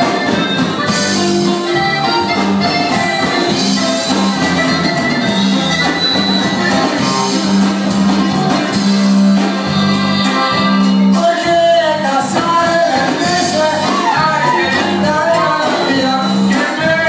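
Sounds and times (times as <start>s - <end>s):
latin dance music: 0.0s - 17.0s
person singing: 10.2s - 17.0s.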